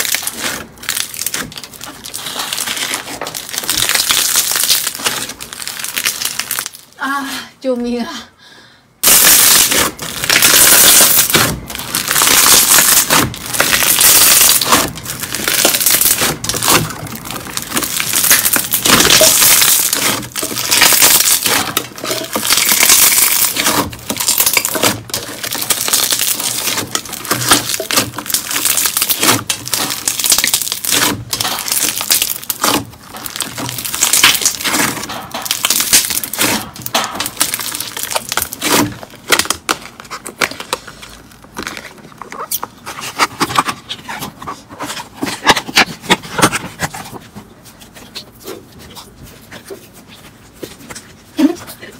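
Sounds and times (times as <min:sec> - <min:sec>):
slime squeezed crackling and popping: 0:00.0 - 0:07.0, 0:09.0 - 0:44.2.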